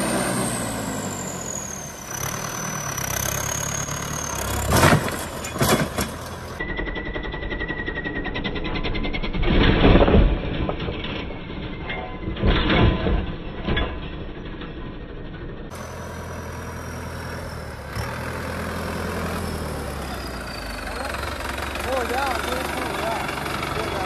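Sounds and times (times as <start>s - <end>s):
tractor diesel engine revving: 0.0s - 10.6s, 15.7s - 24.0s
tyres digging into gravel: 4.4s - 6.6s.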